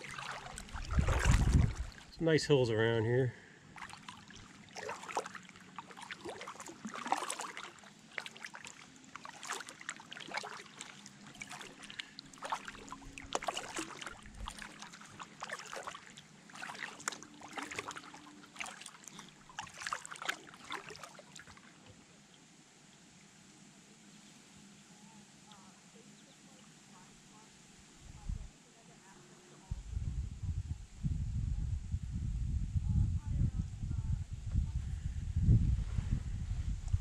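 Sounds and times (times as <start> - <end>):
paddle splashing in water: 0.0 - 2.2, 3.7 - 22.0.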